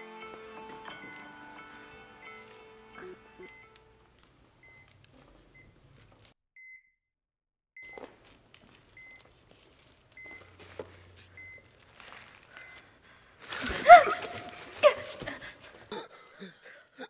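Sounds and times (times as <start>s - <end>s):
heart-rate monitor beeping: 0.9s - 1.4s, 3.4s - 3.9s, 4.6s - 5.8s, 7.8s - 8.2s, 8.9s - 9.4s, 10.2s - 11.7s, 12.5s - 13.0s.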